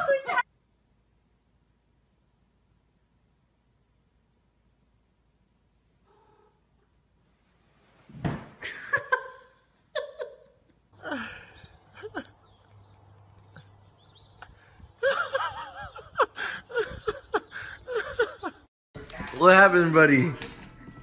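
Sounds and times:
thump: 0:08.1 - 0:08.6
person laughing: 0:08.6 - 0:12.5, 0:14.4 - 0:18.7.

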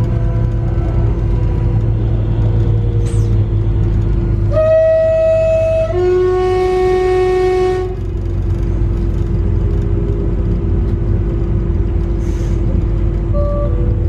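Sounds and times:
low train running rumble: 0:00.0 - 0:14.0
train traction drive whining: 0:00.0 - 0:14.0.

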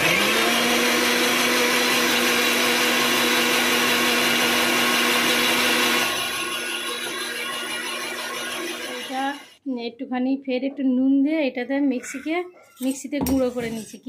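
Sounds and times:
mixer grinder running: 0:00.0 - 0:09.6.

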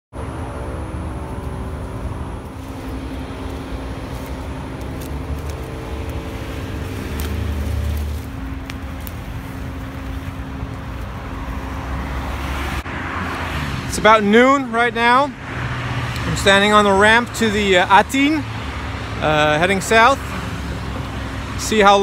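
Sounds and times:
motorway traffic rumble: 0:00.1 - 0:22.0
vehicle passing close: 0:00.2 - 0:22.0.

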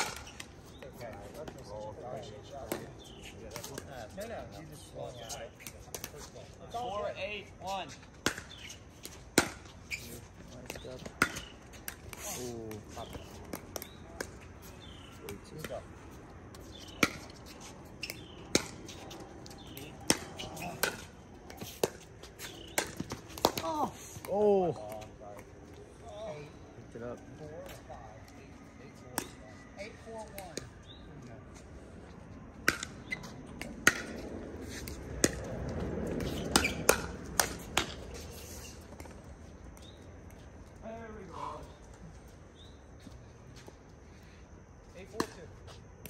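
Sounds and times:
paddles hitting plastic ball: 0:19.6 - 0:25.0.

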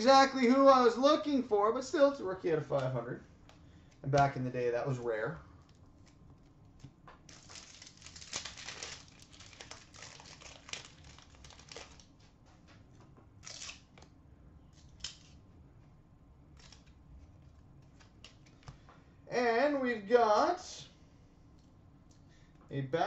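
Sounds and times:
card pack wrapper crinkling and tearing: 0:07.3 - 0:12.2, 0:13.4 - 0:14.1.

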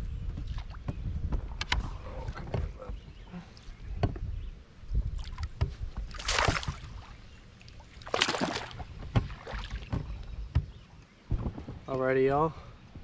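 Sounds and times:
fish splashing water: 0:06.1 - 0:07.2, 0:07.8 - 0:09.9.

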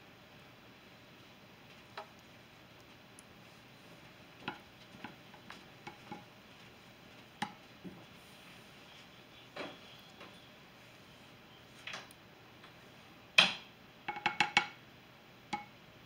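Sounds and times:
plastic spoon tapping glass dish: 0:14.1 - 0:14.8, 0:15.5 - 0:15.7.

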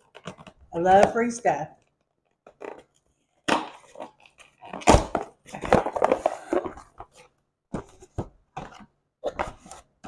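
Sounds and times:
box thump: 0:04.7 - 0:09.8.

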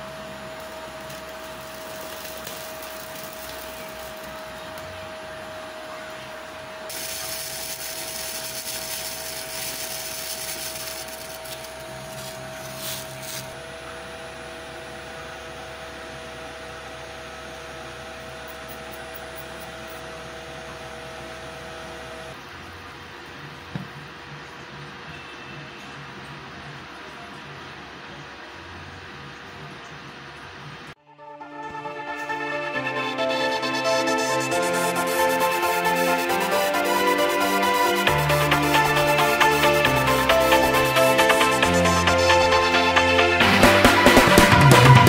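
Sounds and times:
liquid boiling hiss: 0:00.0 - 0:05.0, 0:06.9 - 0:13.6, 0:33.4 - 0:44.2
induction heater whine and hum: 0:00.0 - 0:31.0, 0:31.6 - 0:45.0.

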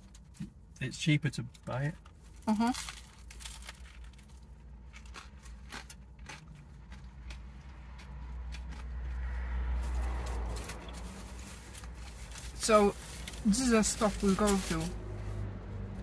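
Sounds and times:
people chewing sandwiches: 0:02.0 - 0:09.4.

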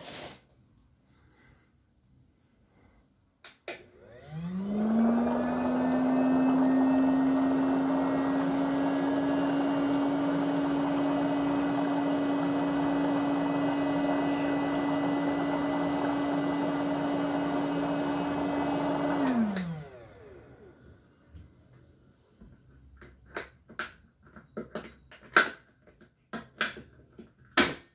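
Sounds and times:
air pump humming: 0:03.9 - 0:20.6
motor winding down: 0:03.9 - 0:20.7.

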